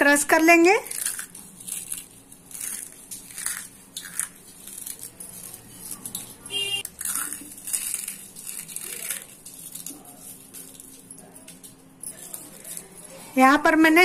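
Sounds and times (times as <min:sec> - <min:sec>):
cornflakes crunching: 0:00.8 - 0:10.8.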